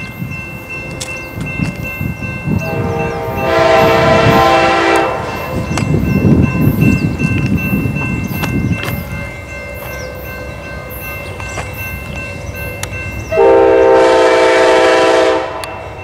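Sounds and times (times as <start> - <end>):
train rumble and wheel noise: 0.0 - 16.0
train horn chord: 2.6 - 5.7, 13.3 - 16.0.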